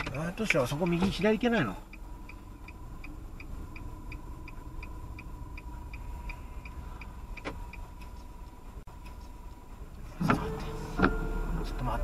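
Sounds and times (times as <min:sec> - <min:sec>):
low engine hum: 0:00.0 - 0:12.0
turn signal clicking: 0:00.0 - 0:12.0
faint steady high tone: 0:10.3 - 0:12.0.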